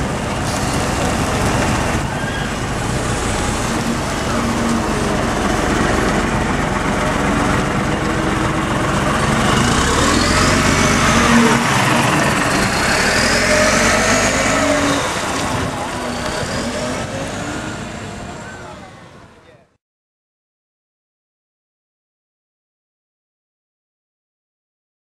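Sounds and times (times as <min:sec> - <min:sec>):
bus engine driving past: 0:00.0 - 0:19.8.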